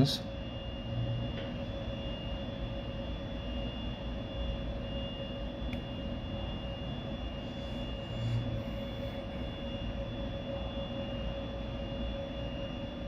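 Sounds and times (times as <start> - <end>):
faint electrical hum: 0.0 - 13.0.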